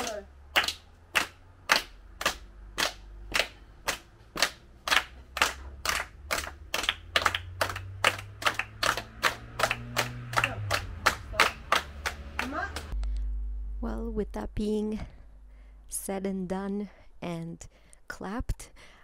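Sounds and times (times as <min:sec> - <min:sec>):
children clapping in a steady beat: 0:00.0 - 0:13.0.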